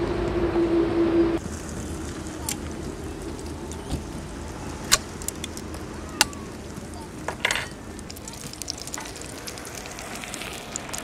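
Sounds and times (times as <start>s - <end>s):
butter sizzling in a frying pan: 8.1s - 11.0s.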